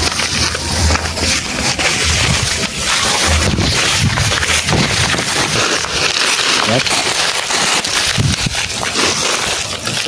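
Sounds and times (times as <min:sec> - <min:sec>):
low wind thumps: 0:00.7 - 0:05.9
wind buffeting microphone: 0:02.0 - 0:05.6, 0:08.0 - 0:08.8.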